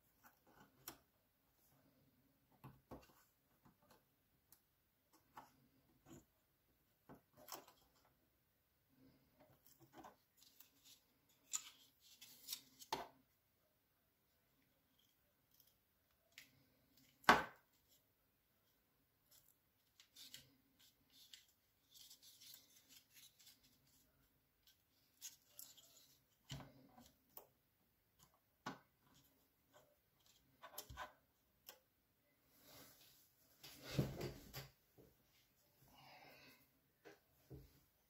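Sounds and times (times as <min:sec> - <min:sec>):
plastic part rustling on desk mat: 0:19.3 - 0:27.2.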